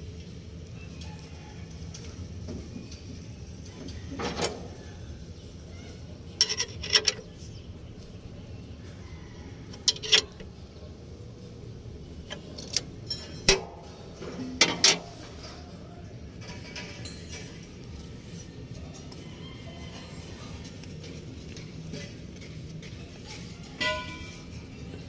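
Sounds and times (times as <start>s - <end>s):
metal tools clanking: 6.3s - 7.4s, 9.7s - 10.5s, 12.2s - 15.7s, 16.4s - 17.8s, 23.7s - 25.0s.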